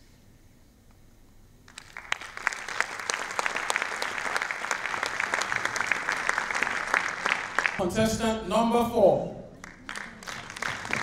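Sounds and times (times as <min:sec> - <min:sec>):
audience applauding: 0:01.7 - 0:07.9, 0:09.6 - 0:11.0.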